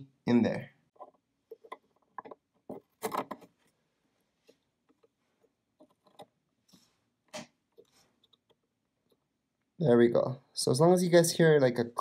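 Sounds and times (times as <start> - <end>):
plastic and metal clicks and scrapes: 1.0 - 3.6.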